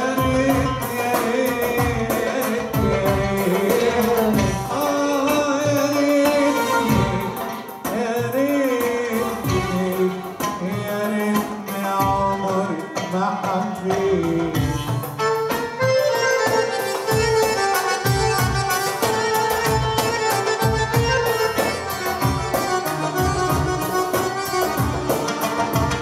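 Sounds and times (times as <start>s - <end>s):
hand drum rhythm: 0.0s - 26.0s
violin melody: 2.4s - 8.2s, 14.6s - 26.0s.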